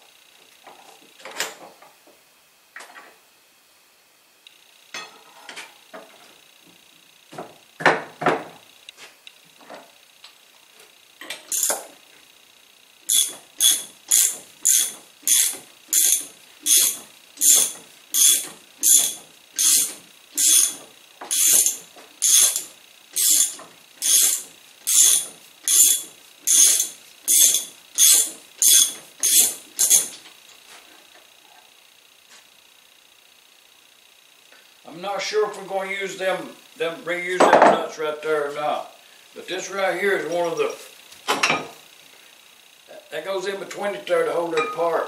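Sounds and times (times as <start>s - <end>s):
ratchet wrench clicking: 11.2s - 11.9s, 13.1s - 30.2s.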